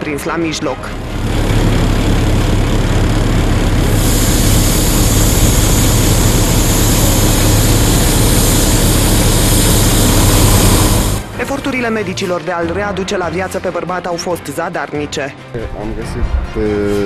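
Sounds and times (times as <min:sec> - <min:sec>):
heavy engine rumble and hiss: 0:01.0 - 0:11.6.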